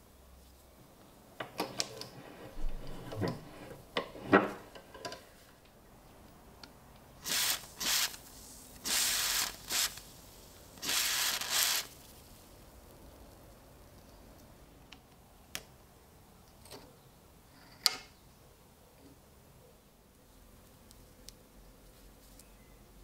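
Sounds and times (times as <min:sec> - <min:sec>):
aerosol spray hissing: 0:07.2 - 0:10.1.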